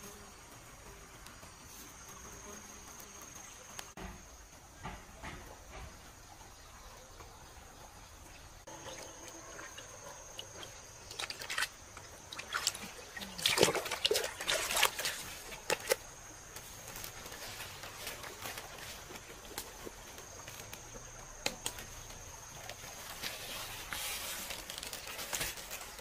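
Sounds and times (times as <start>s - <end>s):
fish splashing in a bucket: 8.7s - 26.0s.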